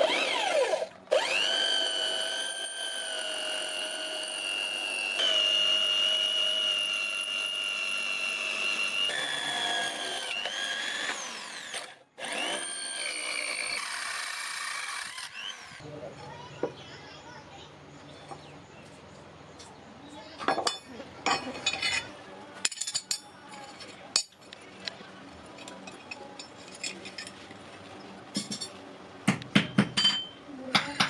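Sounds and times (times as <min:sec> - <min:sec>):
electric drill drilling metal: 0:00.0 - 0:15.8.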